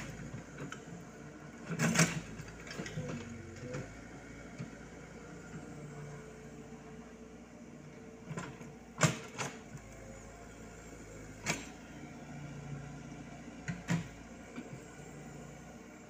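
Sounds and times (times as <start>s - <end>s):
excavator diesel engine running: 0.0s - 16.0s.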